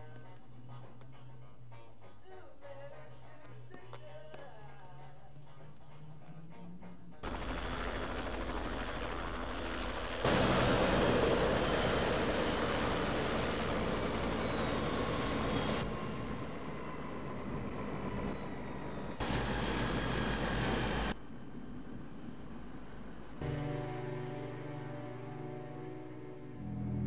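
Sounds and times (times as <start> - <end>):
helicopter turbine engine whine: 7.2 - 27.0.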